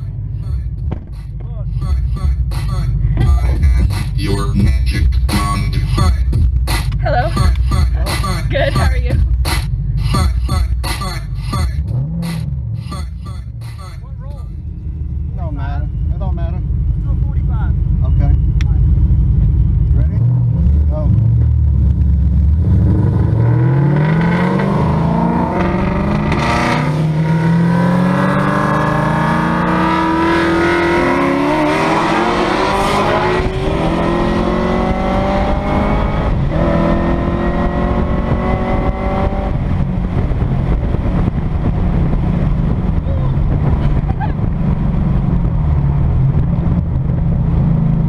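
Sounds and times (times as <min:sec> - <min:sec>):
car engine accelerating hard: 0:14.6 - 0:48.0
wind noise: 0:29.2 - 0:48.0.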